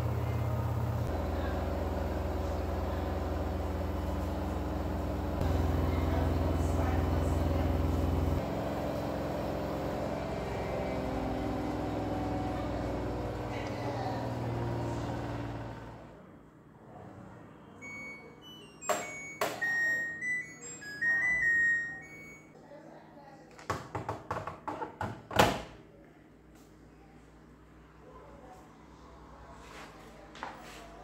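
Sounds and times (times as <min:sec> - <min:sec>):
washing machine drum winding down: 0:00.0 - 0:16.0
end-of-cycle beep tune: 0:17.8 - 0:22.5.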